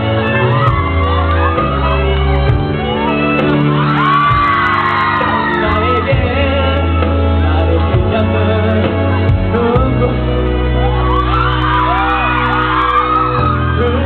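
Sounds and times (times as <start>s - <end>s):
people shouting and whooping: 0.0s - 7.8s, 10.7s - 14.0s
live band music: 0.0s - 14.0s
person singing: 4.3s - 10.9s, 11.8s - 14.0s.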